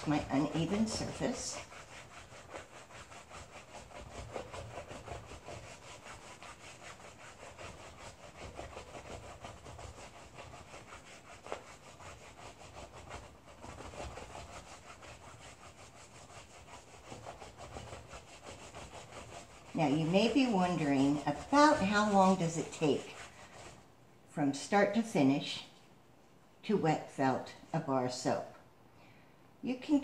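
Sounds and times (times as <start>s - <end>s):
wet scrubbing on ridged tray: 0.0s - 23.9s.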